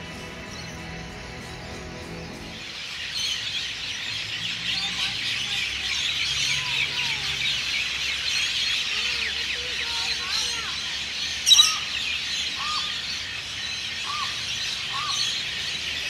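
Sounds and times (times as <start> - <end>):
music: 0.0 - 3.0
birds chirping and calling: 0.0 - 16.0
slow gliding bird calls: 0.0 - 16.0.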